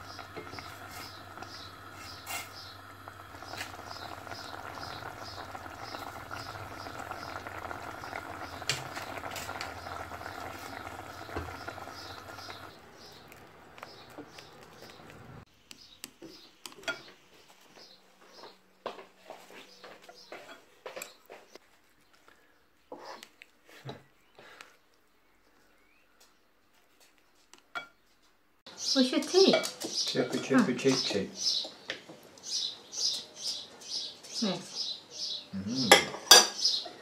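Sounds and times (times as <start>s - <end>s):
soup simmering: 0.0s - 15.8s.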